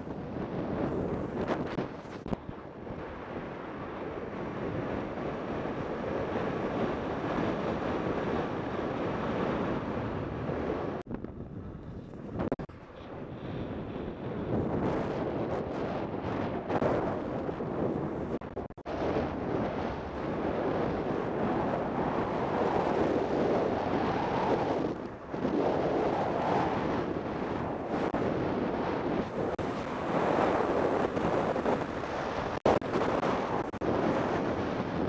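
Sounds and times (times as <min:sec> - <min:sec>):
wind rushing over microphone: 0:00.0 - 0:35.0.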